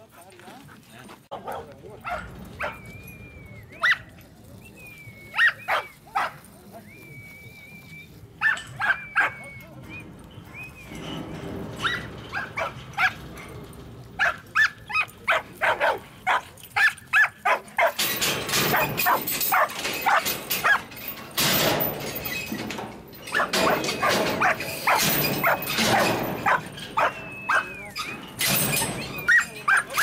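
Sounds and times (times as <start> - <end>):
dog barking sharply: 14.2 - 18.0, 23.4 - 27.6.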